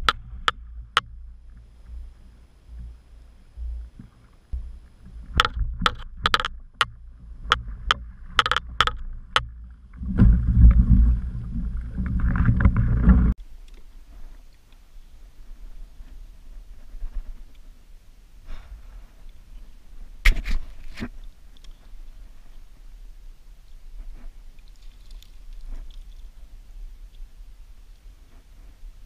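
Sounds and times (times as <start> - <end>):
water splashing and sloshing: 3.6 - 13.4
net clacking and knocking: 5.3 - 9.5.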